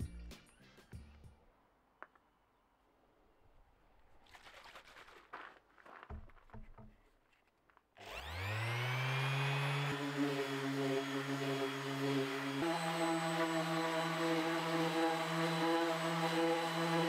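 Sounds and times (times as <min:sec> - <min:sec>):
soft knocks: 0:06.1 - 0:07.1
orbital sander whining: 0:08.0 - 0:17.0.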